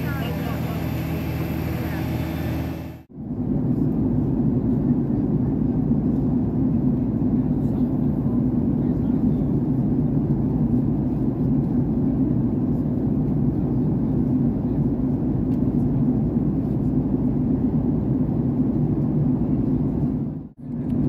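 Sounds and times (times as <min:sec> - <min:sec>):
airliner cabin engine rumble: 0:00.0 - 0:21.0.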